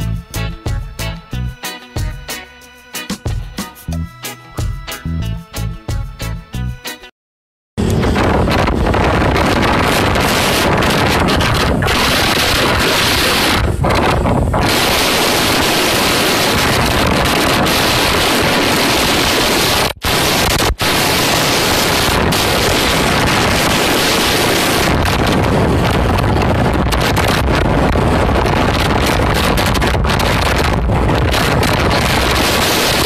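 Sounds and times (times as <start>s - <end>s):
wind buffeting microphone: 7.8s - 33.0s.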